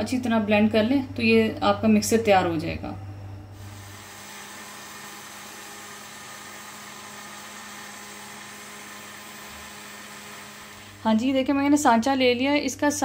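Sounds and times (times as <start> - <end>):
blender motor whirring: 3.6 - 11.4.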